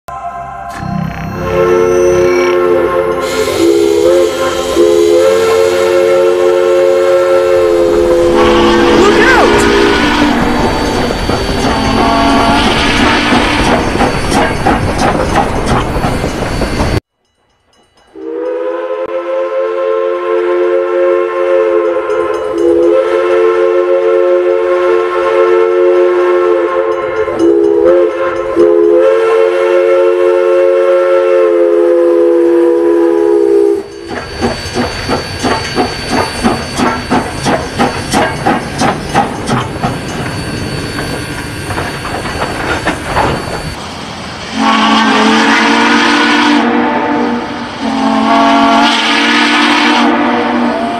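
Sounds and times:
steam whistle blast: 0:00.1 - 0:13.8, 0:18.2 - 0:34.1, 0:44.5 - 0:50.9
lower steam whistle: 0:00.1 - 0:13.9, 0:18.2 - 0:38.3, 0:44.5 - 0:50.9.

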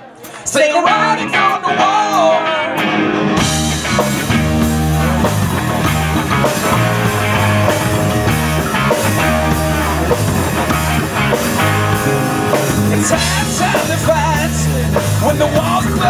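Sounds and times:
distorted electric guitar: 0:00.0 - 0:16.0
drum kit beat: 0:03.3 - 0:16.0.

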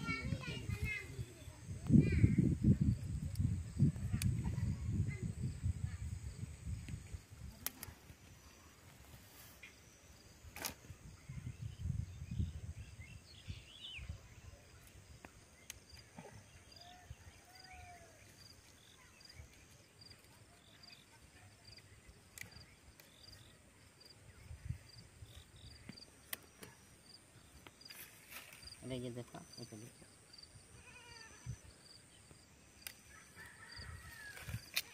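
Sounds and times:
insect chirping: 0:00.0 - 0:34.9
rustling and snapping stalks: 0:06.9 - 0:08.2, 0:10.5 - 0:10.9, 0:21.8 - 0:23.2, 0:25.8 - 0:26.9, 0:27.6 - 0:28.8, 0:32.8 - 0:33.1, 0:34.3 - 0:34.9
faint high rustle: 0:27.9 - 0:28.8.

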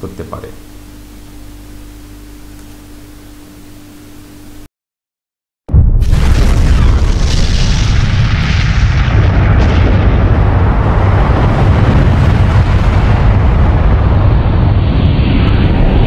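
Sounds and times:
explosion low rumble with hiss: 0:05.7 - 0:16.0.

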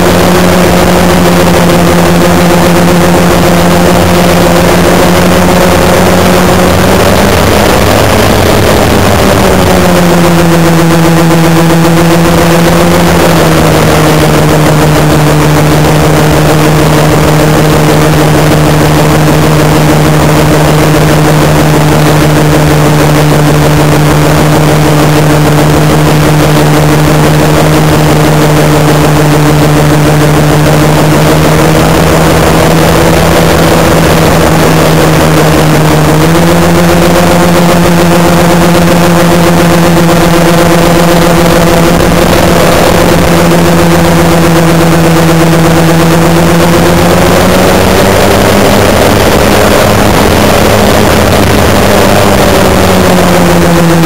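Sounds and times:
model airplane electric motors humming: 0:00.0 - 0:54.0
rush of noise: 0:00.0 - 0:54.0.

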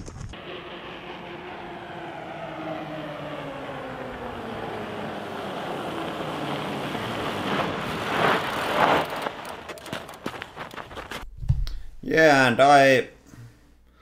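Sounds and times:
bike tyre hum: 0:00.0 - 0:11.3
tyre scrubbing under braking: 0:05.4 - 0:11.2.

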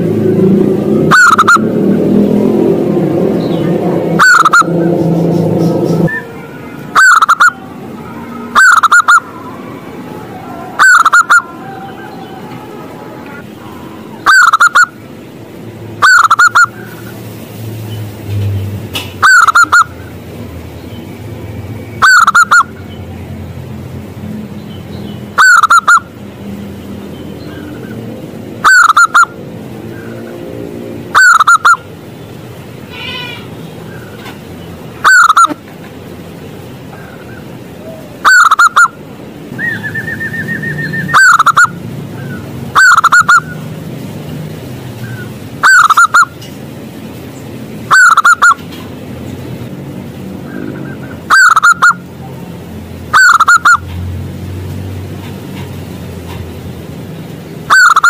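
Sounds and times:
dove cooing: 0:01.0 - 0:01.6, 0:04.2 - 0:04.7, 0:06.0 - 0:14.9, 0:50.5 - 0:52.0.

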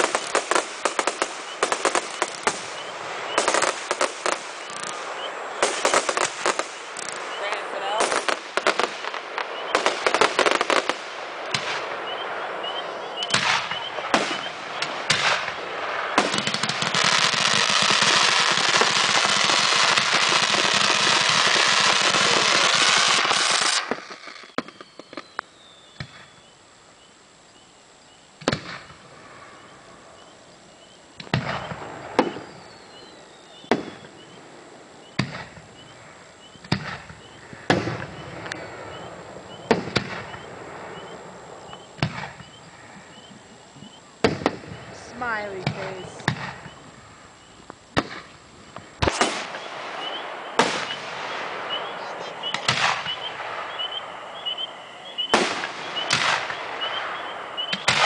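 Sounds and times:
firework shells bursting: 0:00.0 - 0:12.0, 0:13.2 - 0:26.4, 0:47.6 - 0:54.5, 0:55.2 - 0:58.0
fireworks crackling and hissing: 0:00.0 - 0:58.0.

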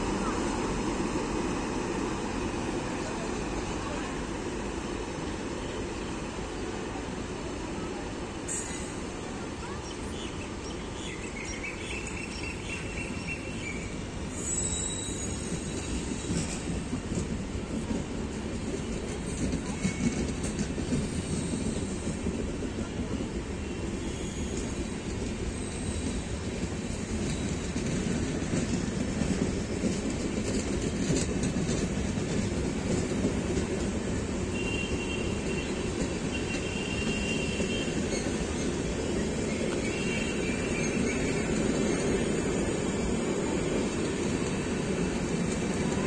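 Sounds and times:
train wheels rumbling on rails: 0:00.0 - 0:46.0
clickety-clack of rail joints: 0:08.4 - 0:46.0
faint high wheel squeal: 0:08.5 - 0:09.1, 0:14.3 - 0:16.7, 0:23.7 - 0:26.4.

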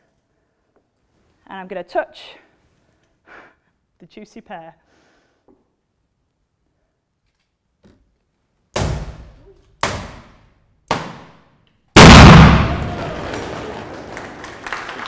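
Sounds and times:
loud explosion in oil drum: 0:12.0 - 0:13.2.

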